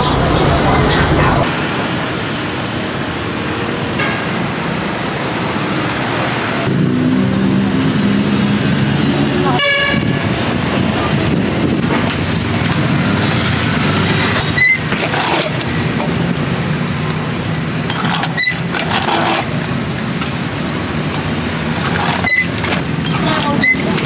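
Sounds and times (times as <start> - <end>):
low engine hum: 0.0 - 1.5
traffic noise: 0.0 - 24.0.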